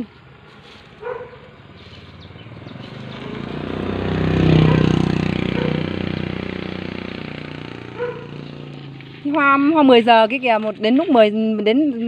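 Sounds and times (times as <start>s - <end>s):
vehicle engine passing by: 0.4s - 11.2s.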